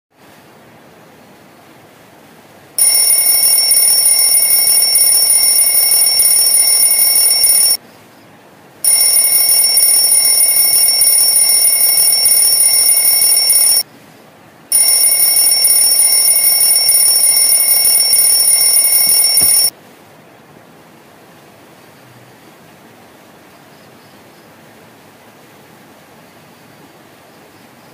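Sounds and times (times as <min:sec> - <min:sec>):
high-pitched electronic alarm: 0:02.8 - 0:07.8, 0:08.8 - 0:13.8, 0:14.7 - 0:19.7.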